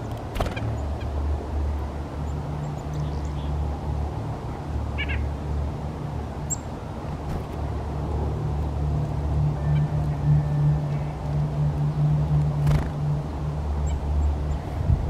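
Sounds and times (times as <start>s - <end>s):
steady low rumble: 0.0s - 15.0s
songbird calls: 5.0s - 5.3s.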